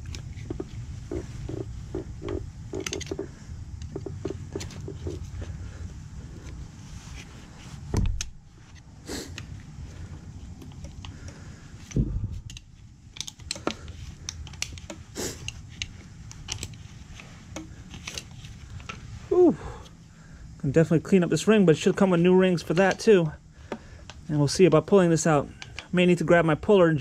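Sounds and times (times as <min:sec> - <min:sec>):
metal tools clicking and scraping: 0:02.2 - 0:05.3, 0:10.6 - 0:16.8
dull thumps: 0:12.0 - 0:12.6.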